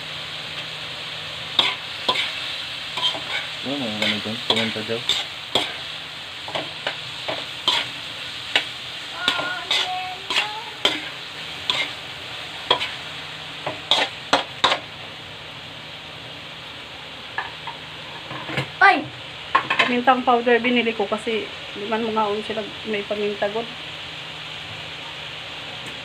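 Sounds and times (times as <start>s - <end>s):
food sizzling in hot oil: 0.0s - 26.0s
spatula scraping a wok: 1.5s - 12.0s, 12.6s - 14.9s.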